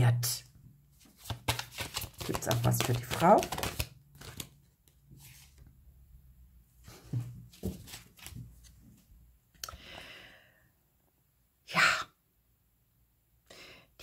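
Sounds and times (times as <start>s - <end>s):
cards clicking and rustling: 1.0s - 5.0s, 7.5s - 8.8s.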